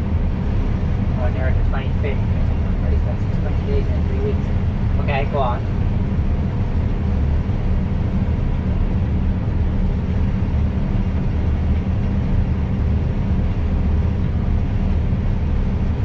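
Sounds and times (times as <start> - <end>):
combine harvester drone: 0.0 - 16.0
constant machine tones: 0.0 - 16.0.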